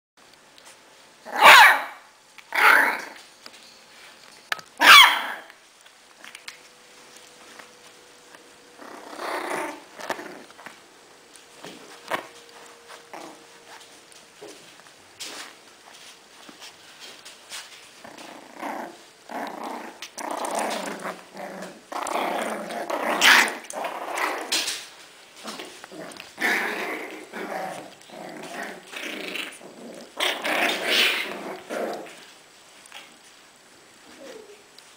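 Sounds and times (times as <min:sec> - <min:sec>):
dog barking: 0:01.3 - 0:02.0, 0:04.8 - 0:05.4
puppies growling in play: 0:02.5 - 0:03.2, 0:08.3 - 0:14.6, 0:17.1 - 0:33.1
puppy sharp cry: 0:04.8 - 0:05.5.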